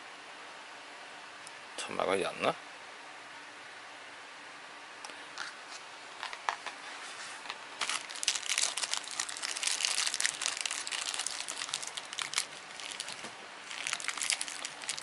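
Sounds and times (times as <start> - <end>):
plastic bag crinkling: 7.8 - 15.0.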